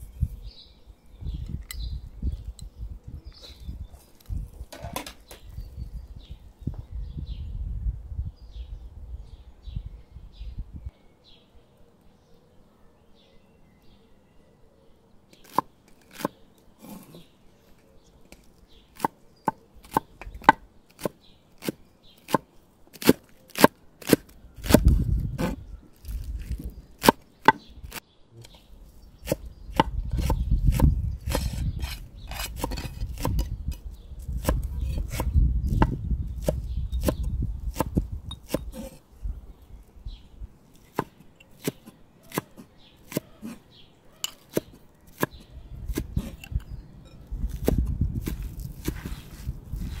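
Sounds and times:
knife chopping on wooden board: 40.9s - 43.6s.

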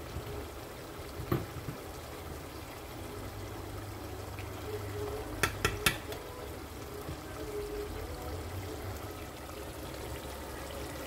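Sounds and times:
metal spoon knocking on pot: 5.4s - 6.2s.

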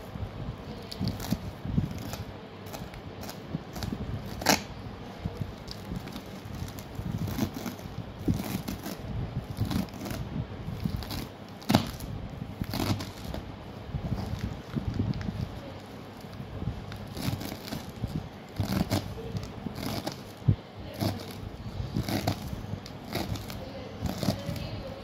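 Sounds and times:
knife slicing spinach: 5.7s - 10.2s, 17.0s - 24.7s.

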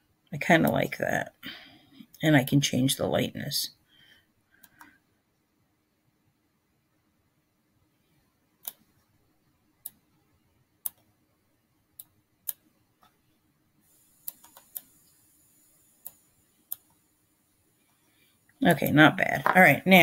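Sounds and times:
faint steady hum: 0.0s - 20.0s
computer mouse clicks: 8.6s - 9.1s, 10.8s - 11.1s, 12.0s - 13.2s, 14.2s - 15.2s, 16.0s - 17.0s.

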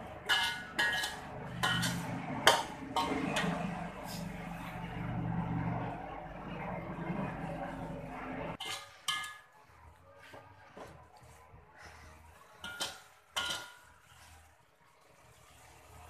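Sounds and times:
spatula clanking against wok: 0.0s - 3.8s, 8.6s - 11.0s, 11.9s - 14.4s
metal spatula scraping curry in wok: 0.0s - 5.0s, 8.5s - 16.0s.

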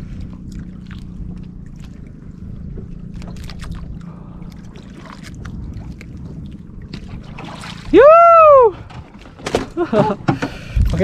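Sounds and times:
boat engine humming: 0.0s - 11.0s
small splashes: 3.0s - 9.8s
knocks against hull: 8.9s - 10.8s.

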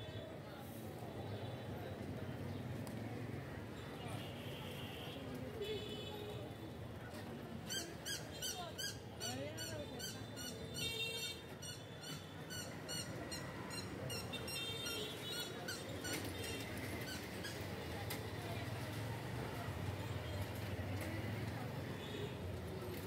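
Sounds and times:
street ambience: 0.0s - 23.0s.

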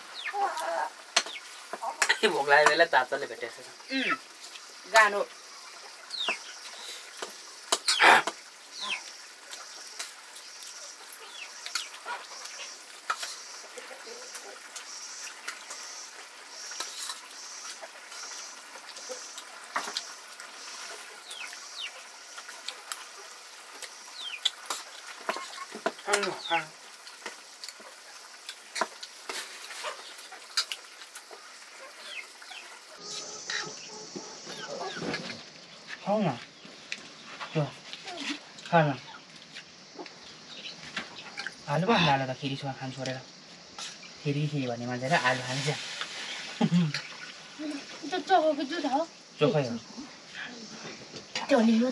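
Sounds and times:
bird chirps and clucks: 0.1s - 0.6s, 1.2s - 2.2s, 5.5s - 22.2s, 23.2s - 24.6s, 31.3s - 35.9s.

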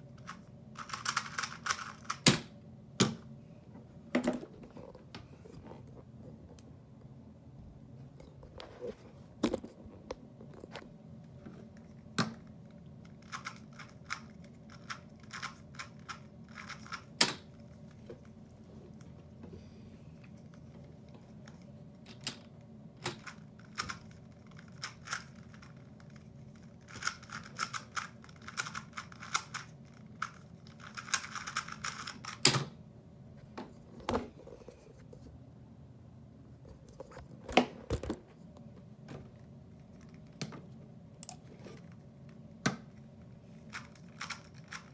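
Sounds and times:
plastic puzzle cube clicking turns: 0.2s - 2.4s, 13.1s - 17.5s, 26.8s - 32.5s.

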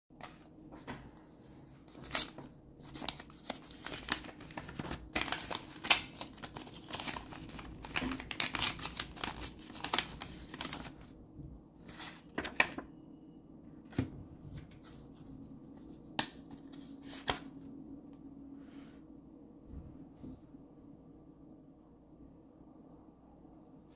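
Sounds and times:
cards being shuffled: 1.9s - 11.0s, 13.9s - 17.6s
packaging torn and crinkled: 1.9s - 11.1s.

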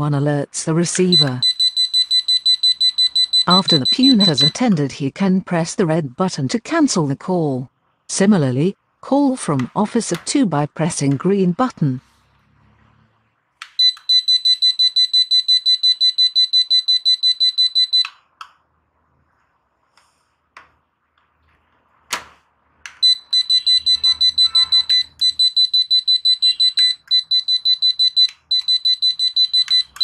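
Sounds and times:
call bell beeping rapidly: 1.0s - 4.6s, 13.8s - 18.0s, 23.0s - 30.0s.

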